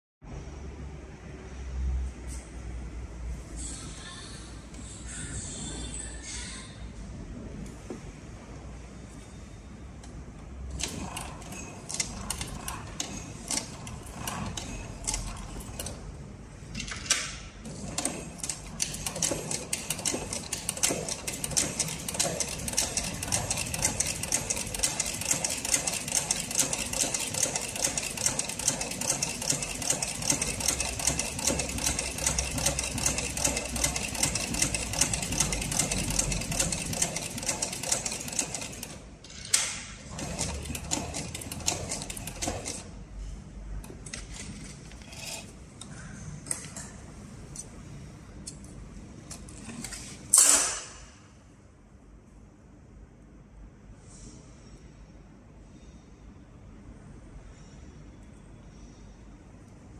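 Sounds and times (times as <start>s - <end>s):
sewing machine stitching leather: 10.6s - 16.2s, 17.6s - 39.0s, 40.0s - 43.0s.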